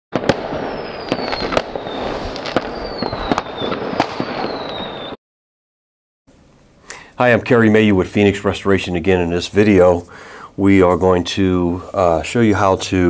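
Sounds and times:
dense crackling and popping: 0:00.2 - 0:04.8
falling whistles: 0:00.2 - 0:05.2.

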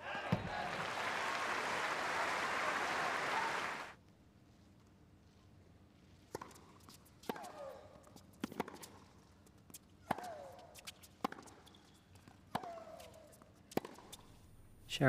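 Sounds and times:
player shrieking: 0:02.4 - 0:03.9
tennis ball bouncing: 0:06.4 - 0:07.7, 0:08.4 - 0:09.1, 0:09.7 - 0:14.3
racket hitting tennis ball: 0:07.2 - 0:07.7, 0:10.0 - 0:11.7, 0:12.3 - 0:14.3.

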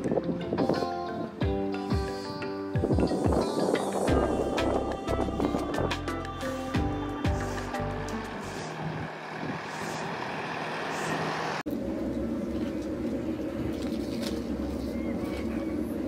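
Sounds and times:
low engine hum: 0:04.1 - 0:16.0
vehicle passing: 0:06.6 - 0:14.9.

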